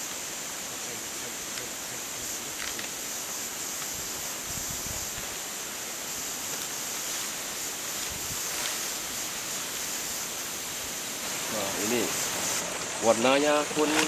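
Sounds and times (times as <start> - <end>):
even hiss: 0.0 - 14.0
wind rumble on microphone: 3.9 - 5.4, 8.0 - 8.6.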